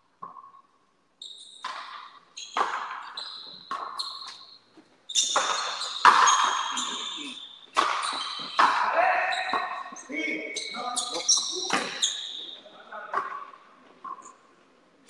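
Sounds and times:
ball rebounding off walls: 5.3 - 6.7, 7.7 - 8.9
rubber ball struck by rackets: 5.4 - 6.6, 7.8 - 8.9.

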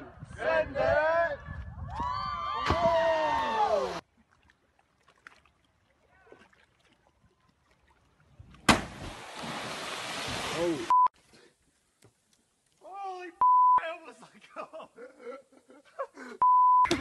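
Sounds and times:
body splashing into water: 8.6 - 10.8
heavy splash: 8.7 - 10.9.

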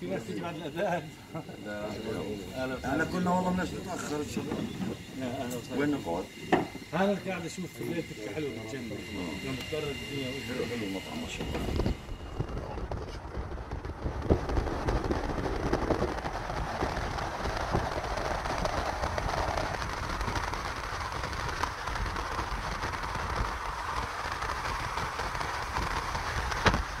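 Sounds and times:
wind buffeting microphone: 10.0 - 27.0.

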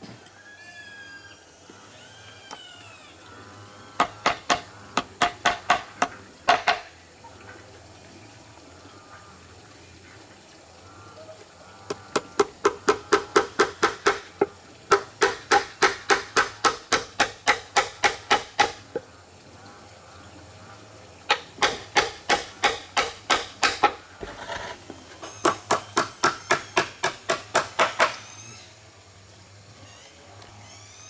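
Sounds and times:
hammer striking nails into wood: 21.6 - 24.0, 25.7 - 28.2.

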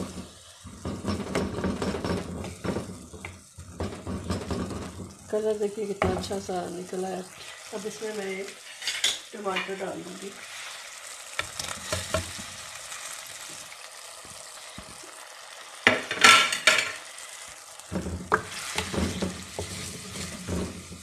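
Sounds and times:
ladle scraping clay pot: 0.0 - 5.4, 17.9 - 21.0
spices sizzling in hot oil: 0.0 - 21.0.

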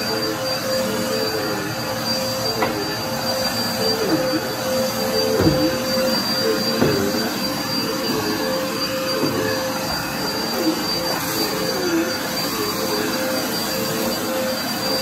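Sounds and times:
vacuum cleaner high whine: 0.0 - 15.0.

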